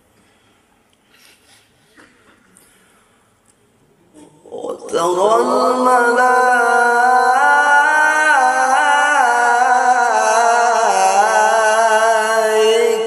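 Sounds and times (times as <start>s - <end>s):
man reciting in melismatic chant: 4.1s - 13.0s.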